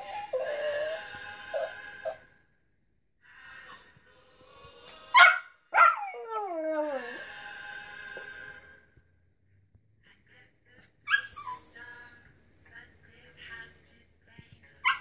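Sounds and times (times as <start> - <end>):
dog howling: 0.0 - 1.7, 5.8 - 7.3
dog yelping: 5.2 - 7.2, 11.1 - 11.6.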